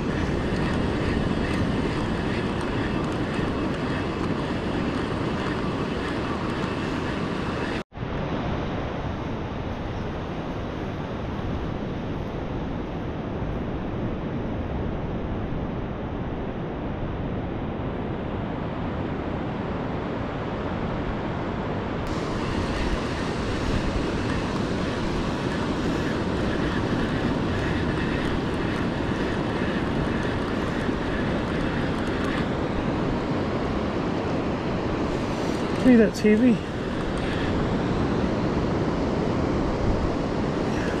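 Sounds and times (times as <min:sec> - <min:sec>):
surf washing: 0:00.0 - 0:07.8, 0:22.1 - 0:41.0
wind rumbling on microphone: 0:00.0 - 0:41.0.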